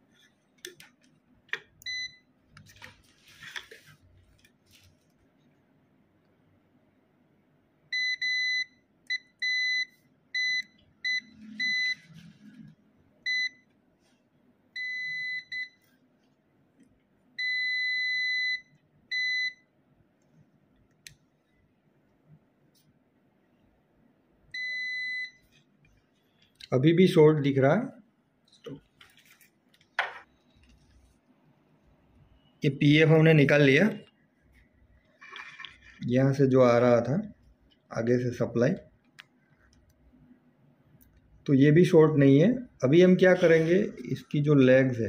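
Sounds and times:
multimeter continuity beeps: 1.8s - 2.3s, 7.9s - 12.1s, 13.3s - 13.7s, 14.8s - 15.9s, 17.4s - 19.7s, 24.6s - 25.5s.

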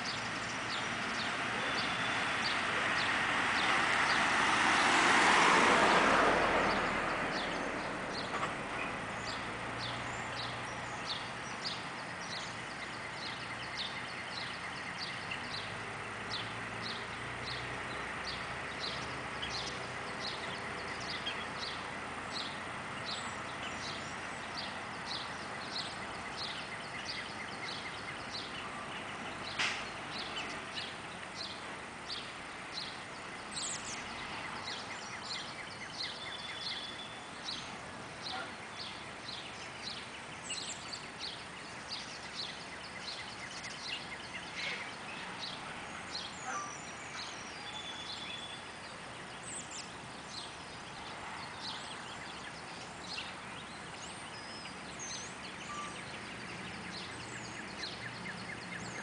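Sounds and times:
songbirds chirping: 0.0s - 59.0s
bird trill: 54.2s - 56.2s.

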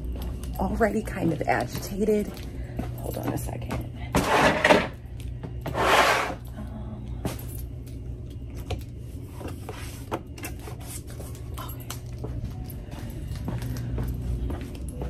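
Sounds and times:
low room hum: 0.0s - 15.0s
scuffing rustles: 9.6s - 15.0s.

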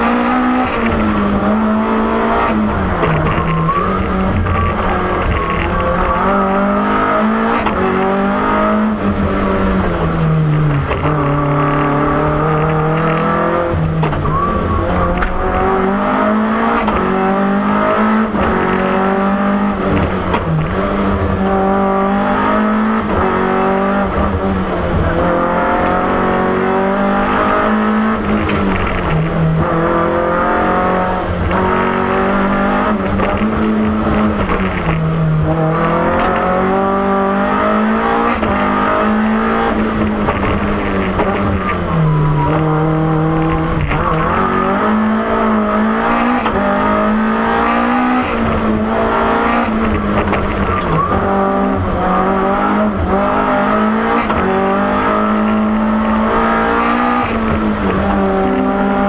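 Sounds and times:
car engine revving hard: 0.0s - 59.0s.

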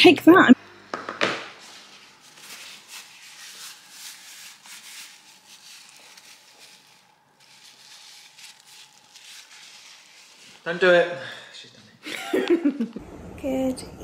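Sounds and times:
faint rustling and handling noise: 1.6s - 12.1s.

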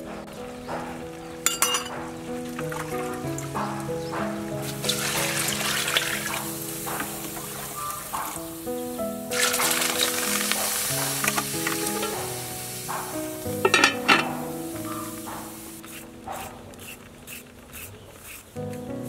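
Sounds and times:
background music with held notes: 0.0s - 17.5s, 18.6s - 19.0s
soup boiling and bubbling: 4.7s - 8.2s, 9.3s - 15.6s.

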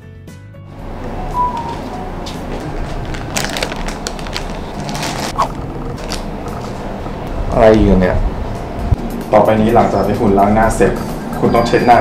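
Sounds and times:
brief squeak: 1.3s - 1.9s
plastic packet rustling: 2.8s - 6.3s.

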